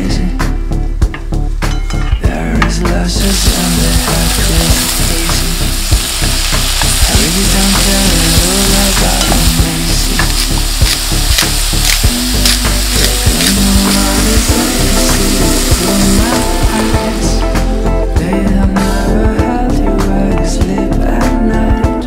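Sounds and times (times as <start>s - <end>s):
onions and mushrooms sizzling: 3.1s - 19.0s.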